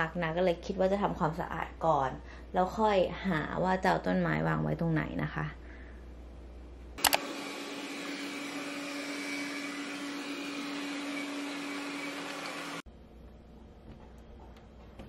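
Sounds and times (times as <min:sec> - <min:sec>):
sharp click: 0:07.0 - 0:07.2
robot vacuum cleaner whirring: 0:07.0 - 0:12.8.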